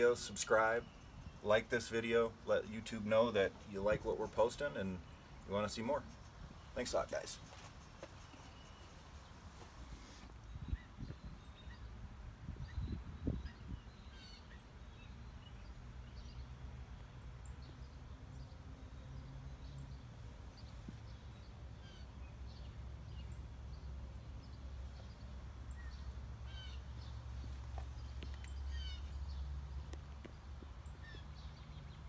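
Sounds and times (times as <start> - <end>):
birds chirping: 0.0 - 32.0.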